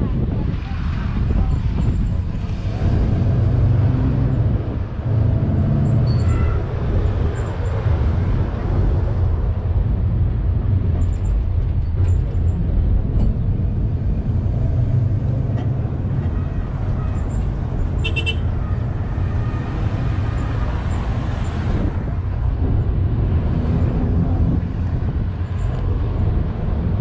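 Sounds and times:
bus engine and road rumble: 0.0s - 27.0s.

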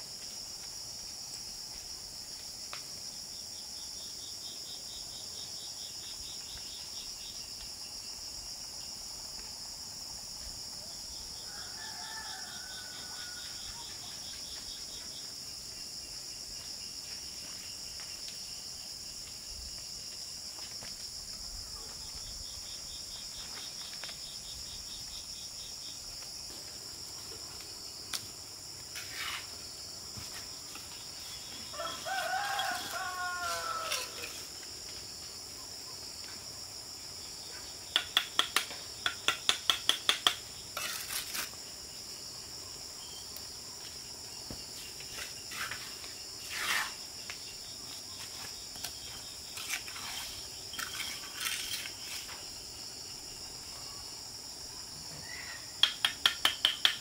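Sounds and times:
crickets and insects chorus: 0.0s - 57.0s
rooster crowing: 11.4s - 13.8s, 31.7s - 34.4s.

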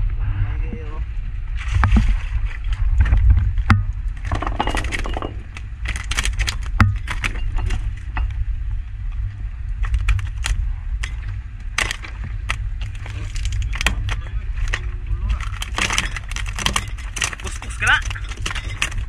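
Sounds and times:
low rumble: 0.0s - 19.0s
fish thrashing on deck: 9.8s - 19.0s.

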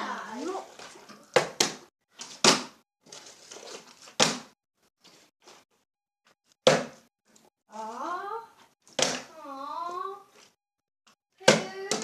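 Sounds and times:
handling and scraping noises: 0.2s - 1.4s, 3.0s - 4.2s
plastic bottles thudding on floor: 0.8s - 4.5s.

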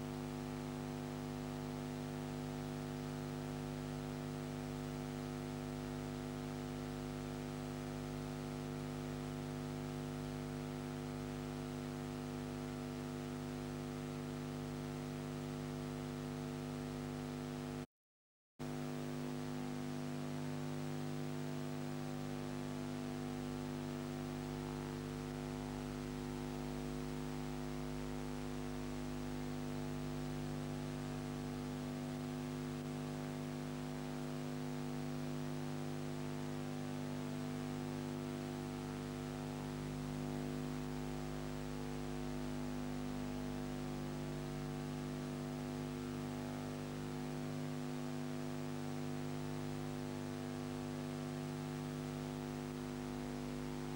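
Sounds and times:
electrical hum: 18.7s - 53.9s.

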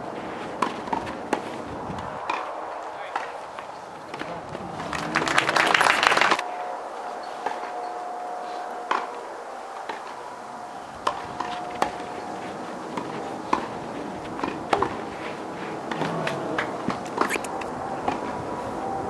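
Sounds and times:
tennis balls hit and bounced: 0.0s - 5.6s, 8.8s - 10.2s, 11.0s - 18.4s.

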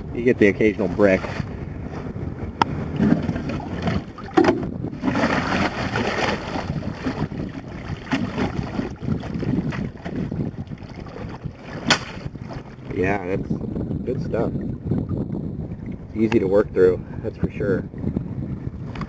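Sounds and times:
shallow river current: 0.0s - 13.4s
wind buffeting microphone: 0.0s - 19.0s
rocks knocking in bucket: 3.0s - 7.3s.

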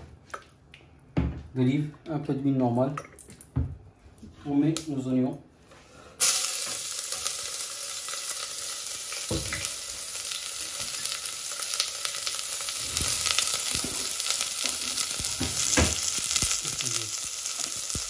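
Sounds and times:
onions sizzling in oil: 6.2s - 18.0s.

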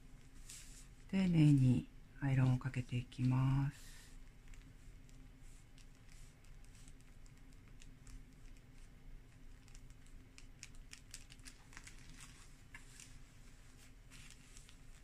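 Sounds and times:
low steady hum: 0.0s - 15.0s
cloth rustling and ticks: 4.2s - 15.0s.

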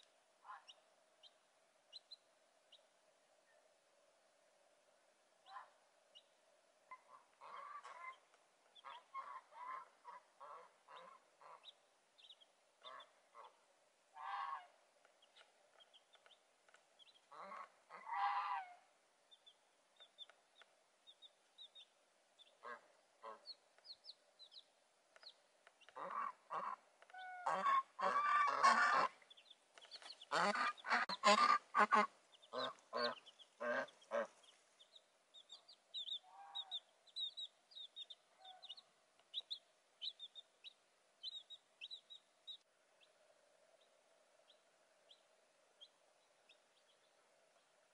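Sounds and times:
chicks peeping: 7.0s - 13.5s, 15.2s - 17.7s, 19.3s - 43.1s, 44.4s - 47.2s
geese honking: 14.2s - 14.8s, 17.3s - 18.8s, 25.9s - 29.2s, 30.2s - 34.5s.

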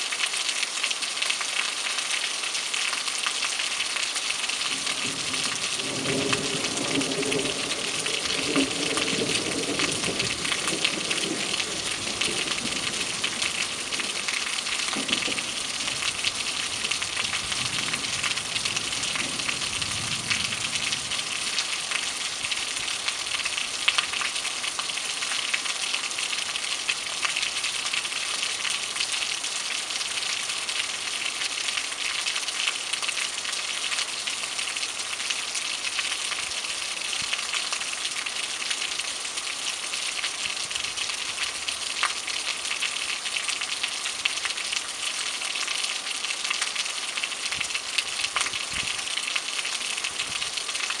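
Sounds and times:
rain on pavement: 0.0s - 51.0s.

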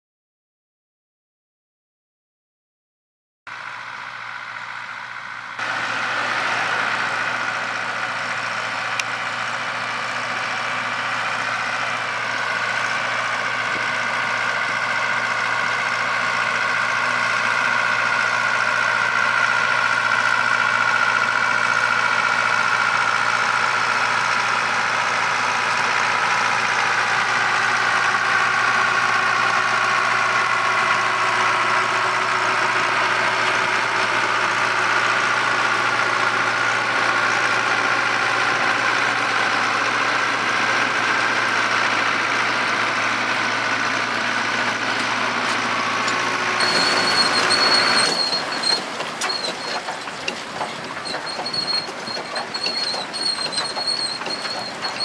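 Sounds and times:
harvester machinery working: 3.5s - 55.0s
tractor diesel engine running: 3.5s - 55.0s.

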